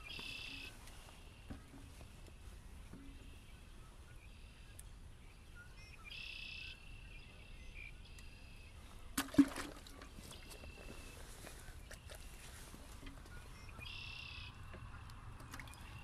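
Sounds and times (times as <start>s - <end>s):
bird call: 0.0s - 1.6s, 5.5s - 6.8s, 10.2s - 15.0s
birds singing: 0.0s - 9.2s, 9.8s - 16.0s.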